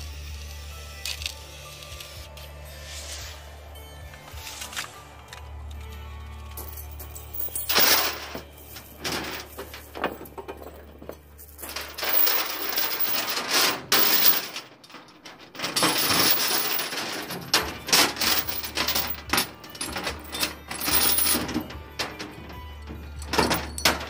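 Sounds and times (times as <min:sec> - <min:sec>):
chain rattling on metal: 0:06.5 - 0:24.0.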